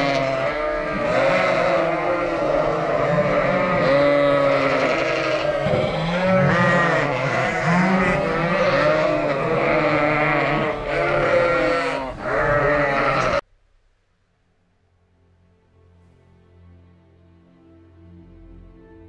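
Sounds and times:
sheep bleating: 0.0 - 13.4.

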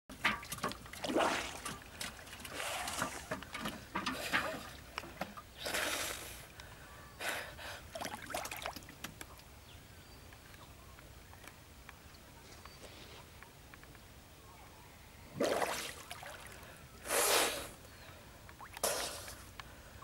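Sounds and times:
small sharp splashes: 0.1 - 6.0, 7.9 - 9.5, 15.4 - 16.6
water sloshing around wading person: 0.1 - 6.5, 7.9 - 9.1, 15.4 - 16.8.

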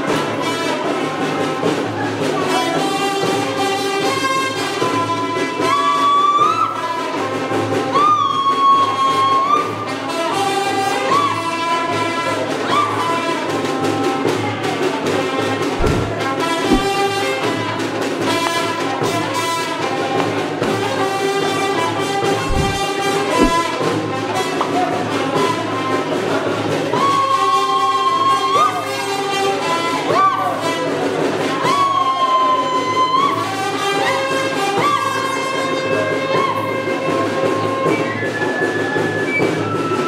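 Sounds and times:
bass drum strokes: 15.8 - 17.0, 22.5 - 23.6.

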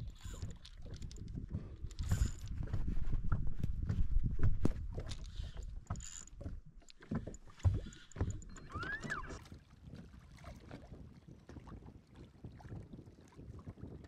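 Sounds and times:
water lapping: 0.0 - 3.7, 4.8 - 14.0
knocks and thumps in a boat: 0.0 - 14.0.

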